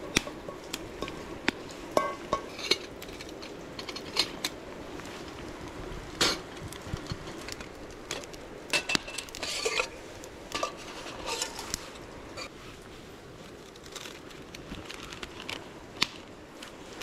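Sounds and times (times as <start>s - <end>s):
steady background hiss: 0.0s - 17.0s
metal cookware clinking: 2.0s - 2.8s.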